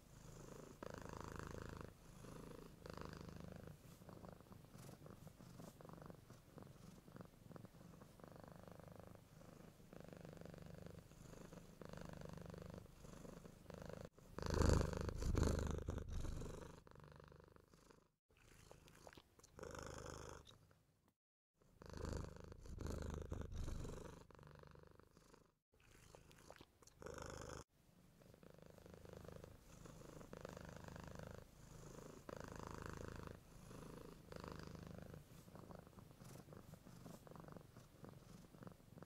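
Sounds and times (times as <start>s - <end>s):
cats purring: 0.0s - 20.7s, 21.7s - 39.0s.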